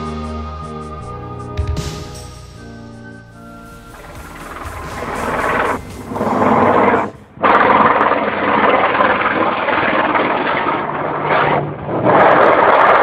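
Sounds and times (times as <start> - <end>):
helicopter flying low overhead: 3.5 - 13.0.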